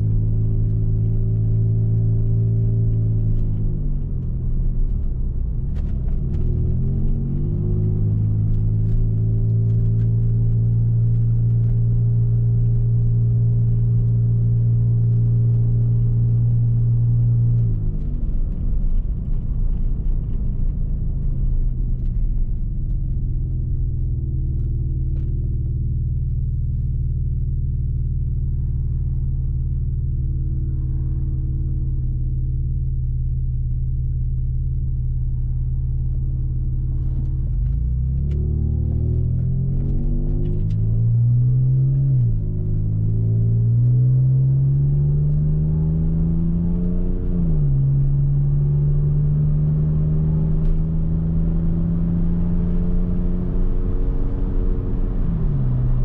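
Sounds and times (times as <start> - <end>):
car engine droning: 0.0 - 56.0
road rumble: 0.0 - 56.0.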